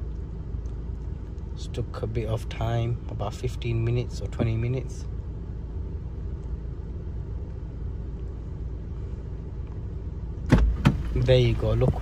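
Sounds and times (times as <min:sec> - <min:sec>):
car engine idling: 0:00.0 - 0:12.0
car door clunks: 0:04.4 - 0:04.8, 0:10.5 - 0:11.2.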